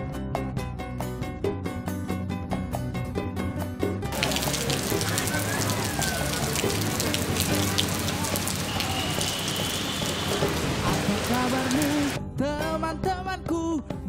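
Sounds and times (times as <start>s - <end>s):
drops striking puddles: 4.1s - 12.2s
rain on wet pavement: 4.1s - 12.2s.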